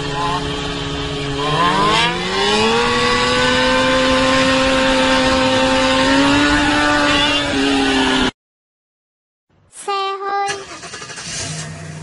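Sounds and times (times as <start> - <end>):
scooter engine at high revs: 0.0 - 8.3.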